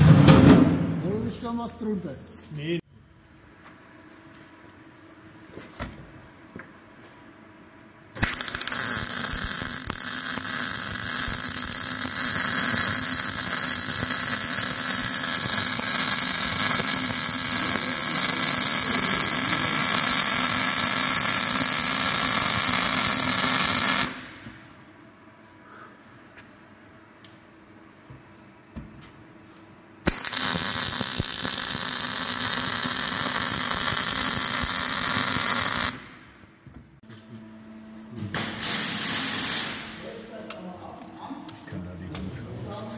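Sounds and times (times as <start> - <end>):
welding arc crackling: 8.2 - 24.4, 30.0 - 36.2, 38.3 - 40.2.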